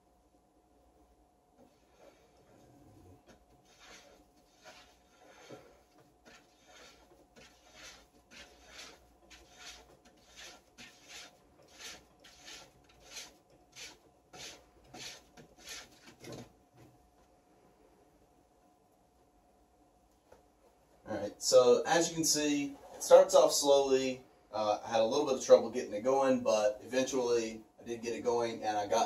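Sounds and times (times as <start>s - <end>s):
hand rubbing wooden wheel rim: 1.6s - 16.5s.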